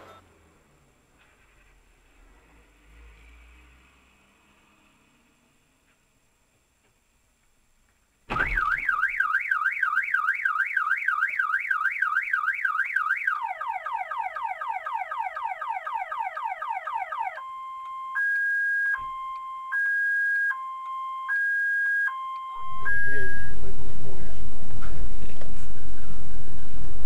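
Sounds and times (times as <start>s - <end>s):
car alarm siren: 8.3s - 24.0s.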